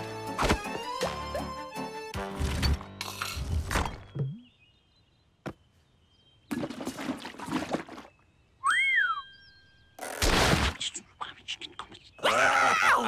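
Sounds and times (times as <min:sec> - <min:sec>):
rising and falling whistle: 0:08.6 - 0:09.4.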